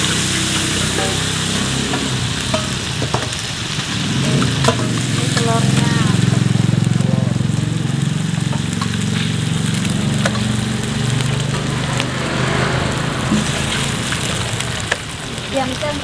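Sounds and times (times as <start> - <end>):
garlic and oil sizzling in a wok: 0.0 - 16.0
metal spatula tapping a wok: 0.5 - 3.4, 4.4 - 5.8, 10.2 - 10.5.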